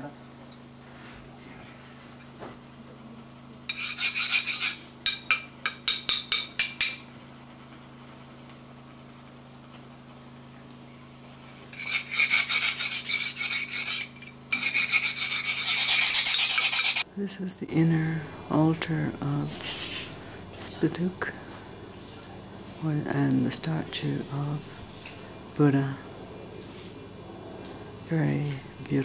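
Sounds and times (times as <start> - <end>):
metal rod rasping metal funnel: 11.8 - 17.0, 19.5 - 20.3.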